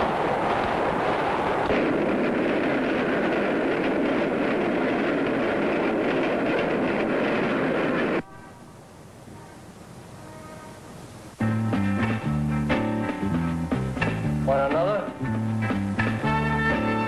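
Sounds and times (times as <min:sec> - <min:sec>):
subway train wheels rattling: 0:00.0 - 0:09.6
faint music: 0:08.2 - 0:17.0.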